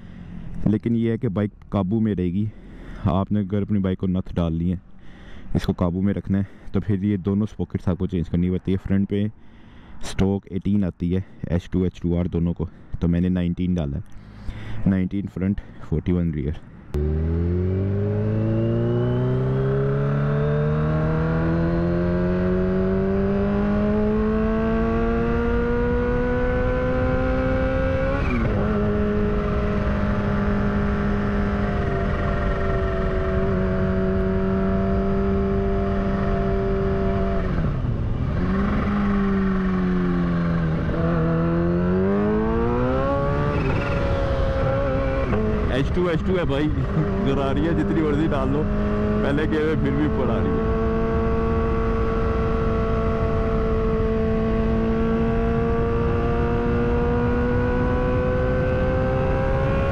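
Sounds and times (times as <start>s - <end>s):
motorcycle engine accelerating: 16.9s - 59.9s.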